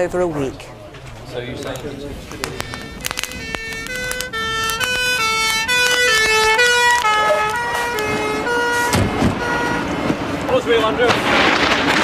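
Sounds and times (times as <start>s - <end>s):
fire engine two-tone siren: 2.6s - 10.4s.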